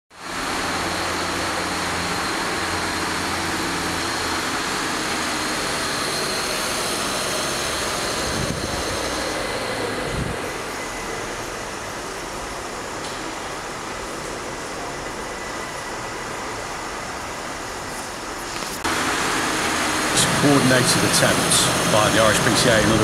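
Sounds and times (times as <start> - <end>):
vehicle engine running: 18.5 - 23.0.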